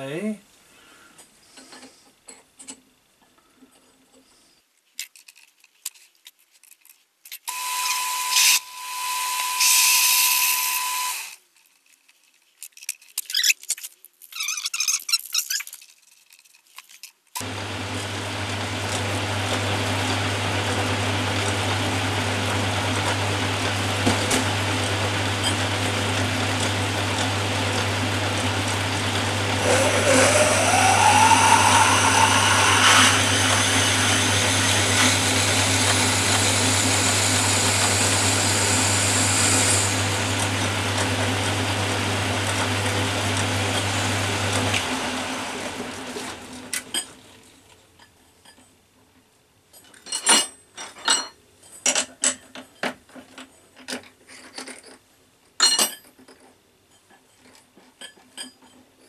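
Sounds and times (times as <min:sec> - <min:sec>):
drill bit squealing and whining: 0:07.5 - 0:11.4, 0:28.3 - 0:40.4
lathe motor humming: 0:17.4 - 0:46.0.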